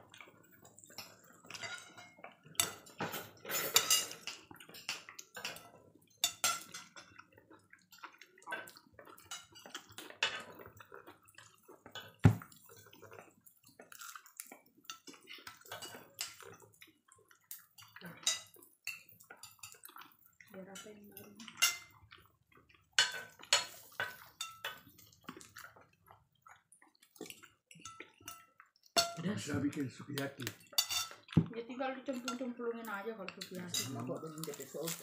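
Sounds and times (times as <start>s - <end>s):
metal utensils clinking on grill: 0.8s - 7.2s, 14.9s - 16.6s, 17.6s - 19.8s, 23.0s - 25.1s, 27.7s - 31.2s, 32.1s - 35.0s.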